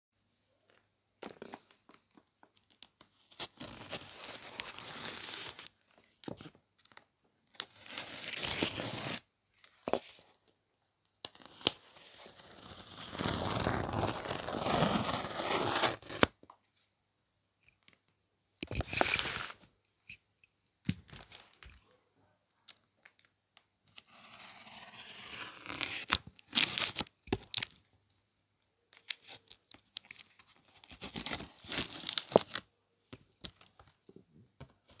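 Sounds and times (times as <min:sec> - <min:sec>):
packing tape peeling and tearing: 0:07.6 - 0:09.2, 0:11.3 - 0:16.3, 0:29.0 - 0:32.6.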